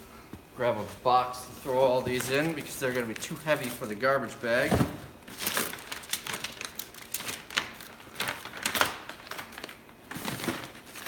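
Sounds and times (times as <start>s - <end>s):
paper rustling and slapping: 4.6s - 11.0s.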